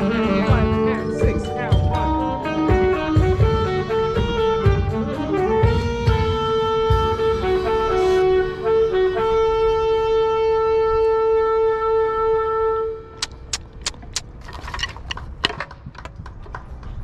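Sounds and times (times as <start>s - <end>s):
marching band wind section: 0.0s - 9.7s
sharp clicks: 13.2s - 14.3s.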